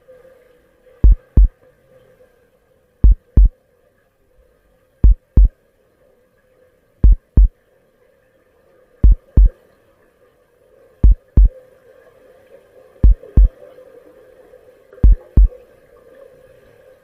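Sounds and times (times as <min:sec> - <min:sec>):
faint steady hum: 0:00.0 - 0:17.0
heartbeat thumps: 0:01.0 - 0:01.5, 0:03.0 - 0:03.5, 0:05.0 - 0:05.5, 0:07.0 - 0:07.5, 0:09.0 - 0:09.5, 0:11.0 - 0:11.5, 0:13.0 - 0:13.5, 0:15.0 - 0:15.5.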